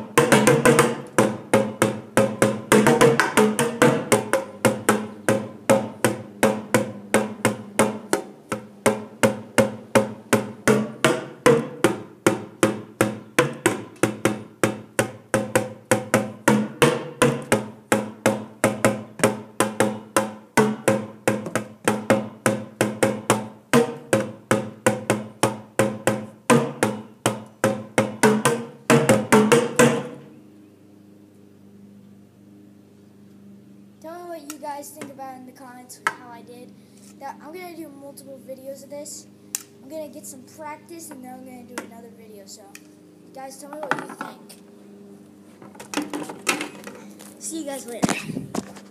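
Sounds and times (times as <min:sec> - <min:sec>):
sticks beating plastic buckets: 0:00.2 - 0:30.1.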